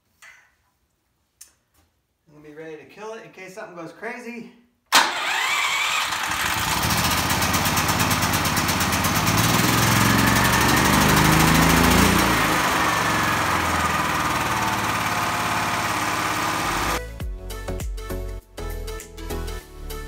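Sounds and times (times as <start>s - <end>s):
generator engine running: 5.0s - 17.0s.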